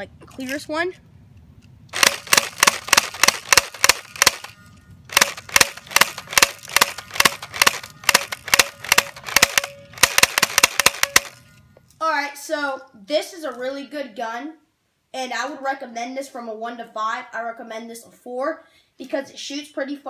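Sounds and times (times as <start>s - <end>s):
airsoft gun firing clicking shots: 2.0s - 11.4s.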